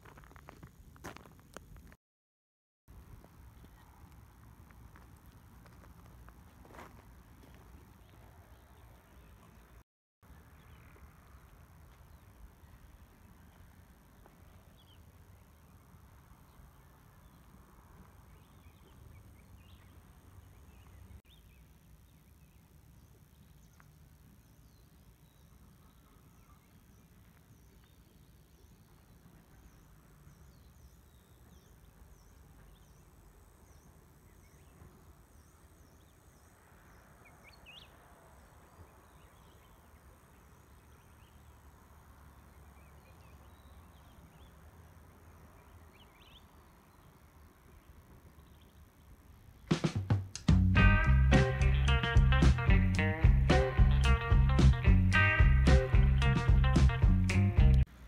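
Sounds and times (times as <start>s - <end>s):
low rumble: 50.5s - 57.9s.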